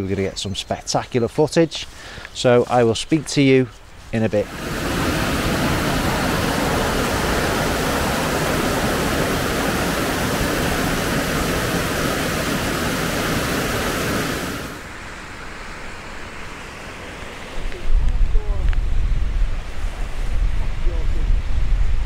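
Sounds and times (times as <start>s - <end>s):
water rushing over boulders: 4.4s - 15.1s.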